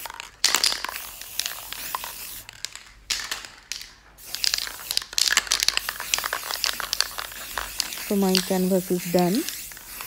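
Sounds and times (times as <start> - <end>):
spray paint can hissing: 0.0 - 2.8, 3.7 - 10.0
plastic sheet crinkling: 4.4 - 10.0.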